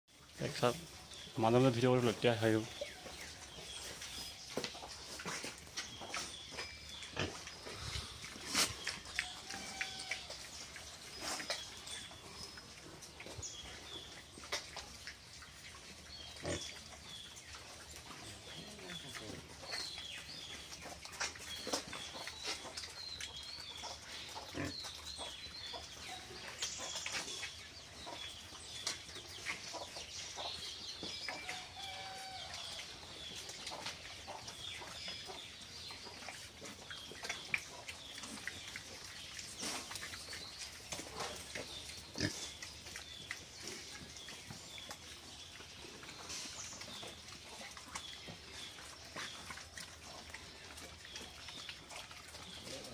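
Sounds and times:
pigs chomping from bowls: 2.2s - 32.0s
pigs grunting: 16.2s - 17.2s, 23.8s - 25.3s, 41.1s - 43.9s, 46.0s - 52.9s.

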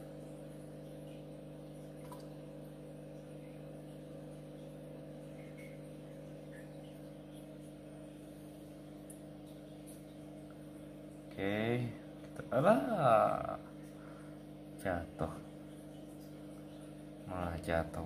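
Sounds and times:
aquarium equipment humming: 0.0s - 18.0s.

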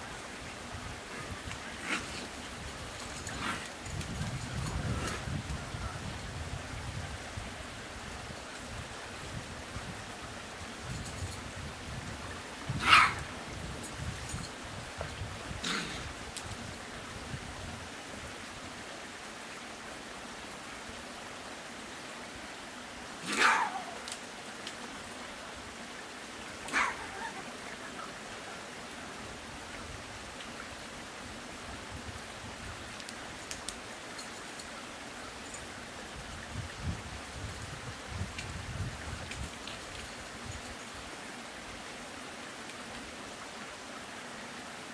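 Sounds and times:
rain hissing: 0.0s - 44.9s
raccoon crying: 26.7s - 27.5s.

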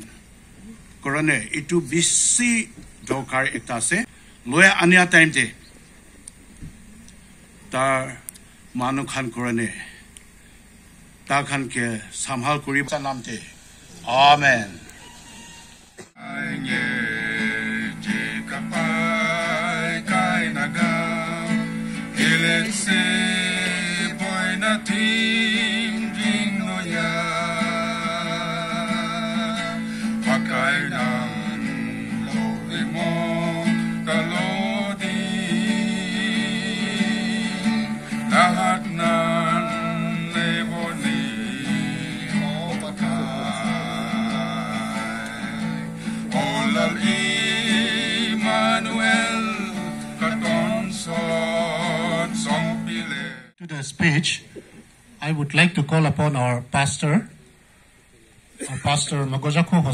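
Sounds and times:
acoustic guitar strumming: 16.0s - 53.5s
person singing: 16.2s - 53.6s.

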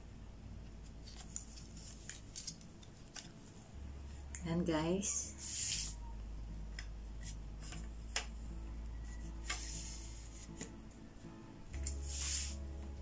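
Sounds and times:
low steady hum: 0.0s - 13.0s
tripod parts clicking and rubbing: 1.0s - 3.4s.

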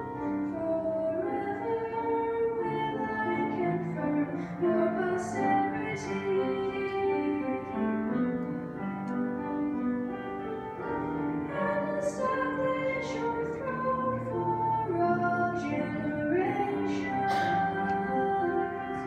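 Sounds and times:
piano accompaniment: 0.0s - 19.0s
girl singing a hymn: 0.4s - 7.8s, 11.5s - 19.0s.

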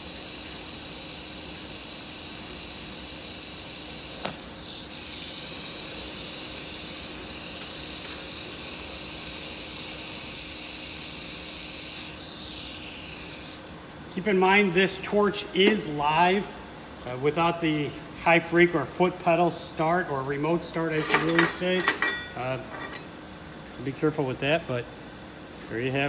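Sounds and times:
welding arc hissing: 0.0s - 16.4s
sharp click: 4.2s - 4.4s.

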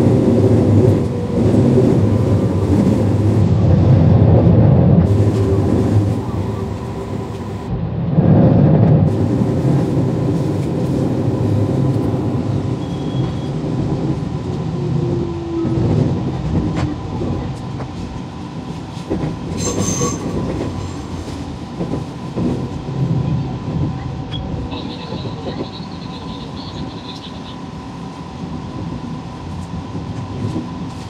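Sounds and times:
train wheels rumbling on rails: 0.0s - 31.0s
high squeal: 19.6s - 20.4s.

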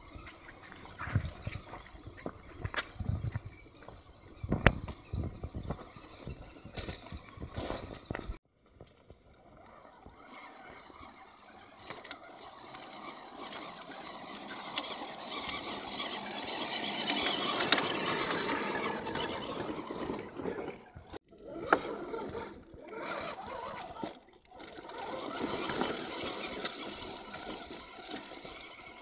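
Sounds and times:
tyres scrabbling on stones: 0.0s - 9.2s, 10.0s - 29.0s
rc truck motor whine: 0.0s - 29.0s.

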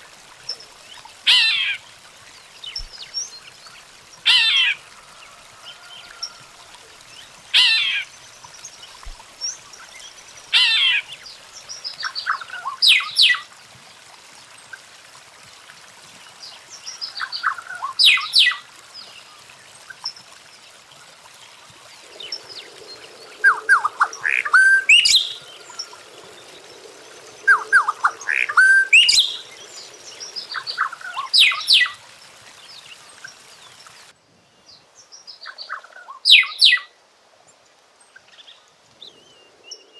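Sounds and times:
birds chattering and trilling: 21.9s - 32.2s.

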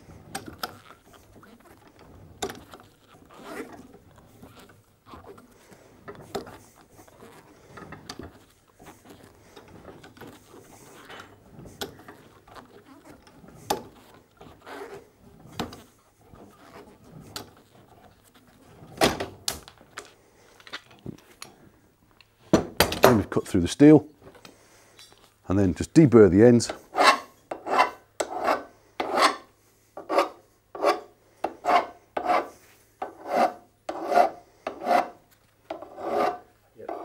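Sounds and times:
pipe cutter clicking and scraping: 26.7s - 29.4s.

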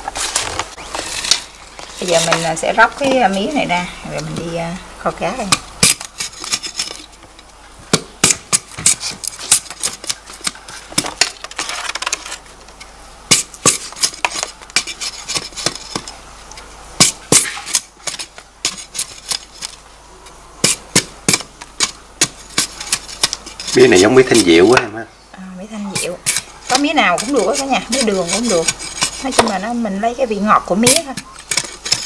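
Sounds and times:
knife scraping: 5.5s - 12.4s, 13.3s - 16.2s, 17.0s - 19.8s, 20.6s - 24.5s, 25.9s - 32.0s.

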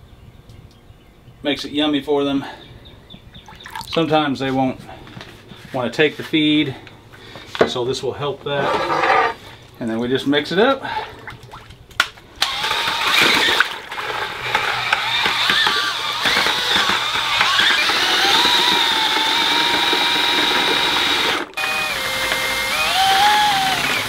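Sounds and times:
paddle mixer stirring water: 3.5s - 4.0s, 12.7s - 24.0s
cordless drill motor whine: 12.4s - 24.0s.

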